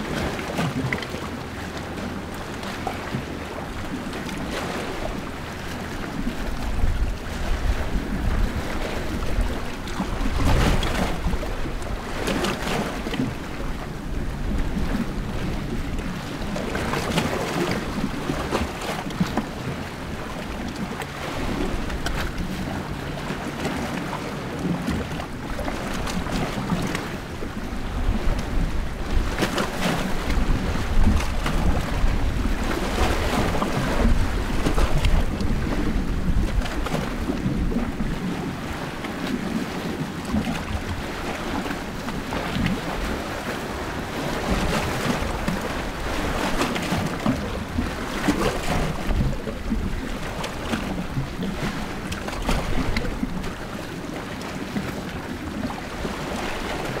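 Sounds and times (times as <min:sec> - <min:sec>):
small waves washing on shore: 0:00.0 - 0:57.0.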